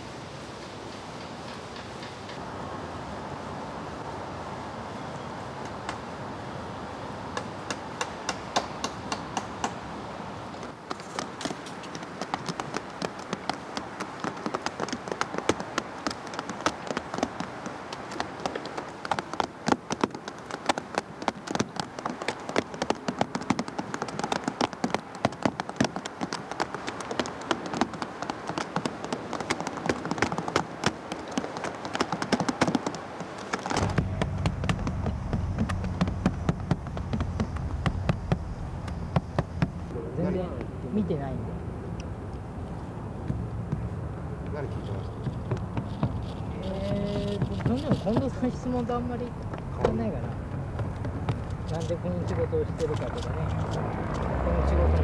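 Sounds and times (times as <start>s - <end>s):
small hammers tapping nails: 7.4s - 9.8s
low steady hum: 33.6s - 55.0s.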